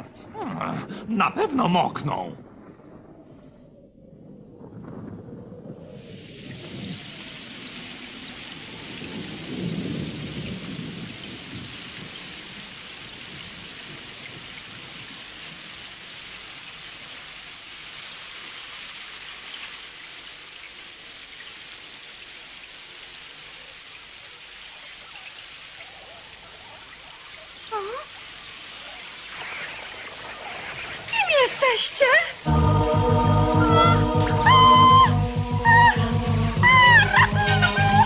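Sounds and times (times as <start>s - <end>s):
thunder rumble: 0.0s - 15.9s, 29.3s - 38.0s
heavy pouring rain: 0.0s - 38.0s.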